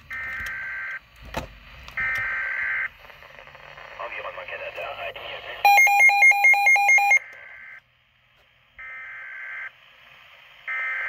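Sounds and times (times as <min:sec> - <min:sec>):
weather radio two-tone beeping: 0:04.0 - 0:07.8.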